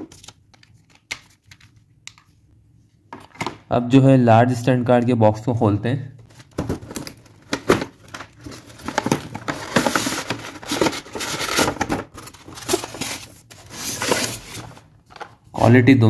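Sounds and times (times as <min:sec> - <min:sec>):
packaging tearing and crinkling: 0:08.0 - 0:14.8.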